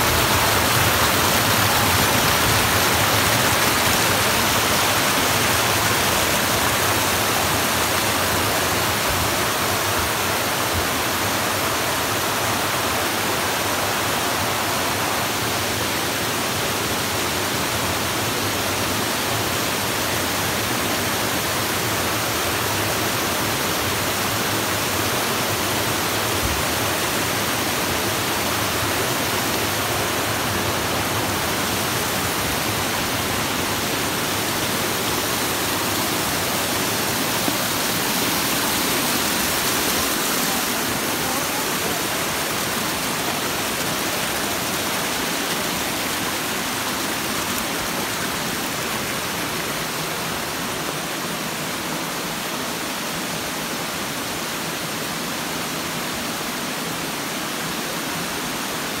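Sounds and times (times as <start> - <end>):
waterfall pouring: 0.0 - 9.8, 20.6 - 50.6.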